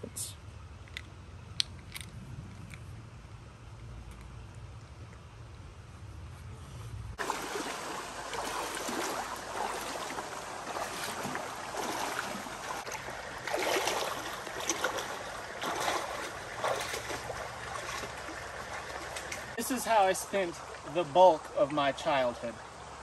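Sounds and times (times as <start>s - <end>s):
water splashing around legs: 7.2s - 21.8s
stream rushing: 7.2s - 23.0s.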